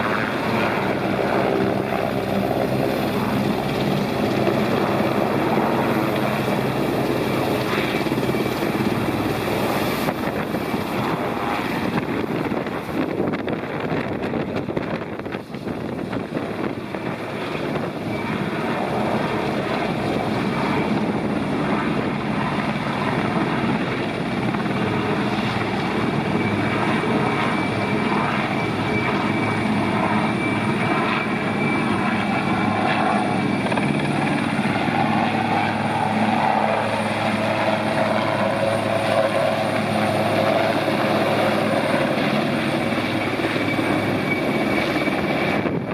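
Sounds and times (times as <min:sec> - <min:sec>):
helicopter rotor beat: 0:00.0 - 0:45.9
helicopter turbine whine: 0:00.0 - 0:45.9.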